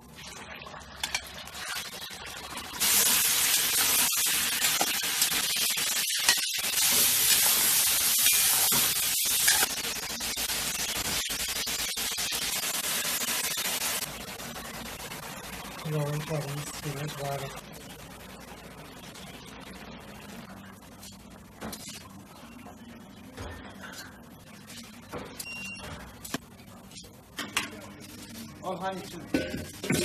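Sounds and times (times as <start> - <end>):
beef sizzling in hot oil: 0.9 - 17.5.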